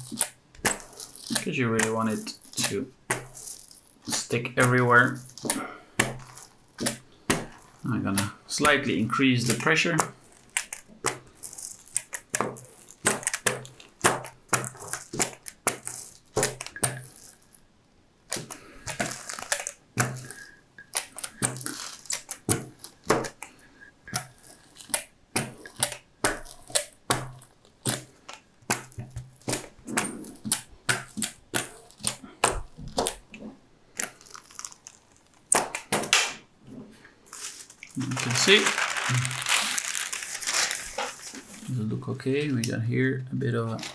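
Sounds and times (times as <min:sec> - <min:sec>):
paper crinkling and rustling: 0:18.4 - 0:20.4, 0:21.0 - 0:23.4, 0:34.1 - 0:35.5, 0:37.2 - 0:42.6.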